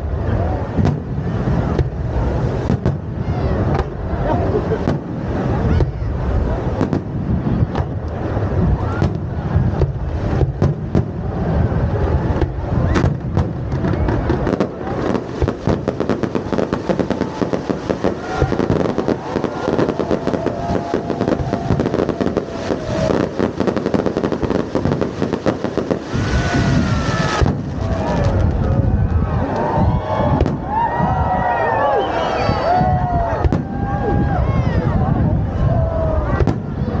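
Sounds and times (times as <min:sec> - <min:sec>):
fireworks bangs and crackles: 0:00.0 - 0:37.0
people's voices: 0:00.0 - 0:37.0.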